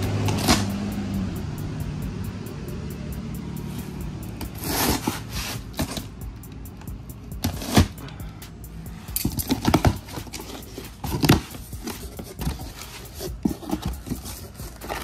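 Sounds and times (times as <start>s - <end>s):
cardboard box being handled and opened: 3.7s - 6.2s, 7.4s - 8.0s, 9.2s - 15.0s.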